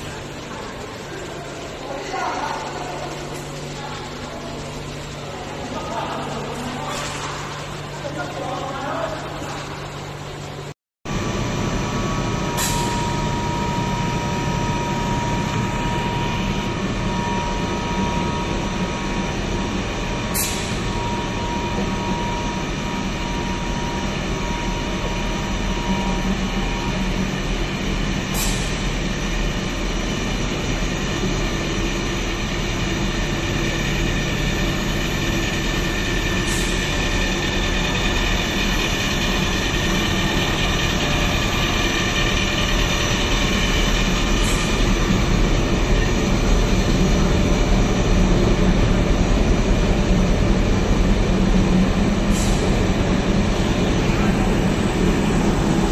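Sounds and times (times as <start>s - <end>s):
stranding machine whir: 0.0s - 55.9s.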